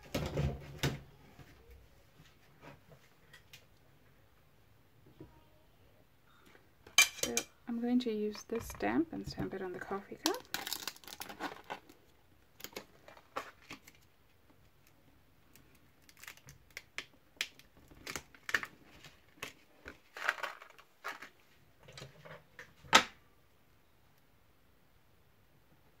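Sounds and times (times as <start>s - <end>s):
plastic packaging crinkling: 10.0s - 14.1s, 15.5s - 21.5s.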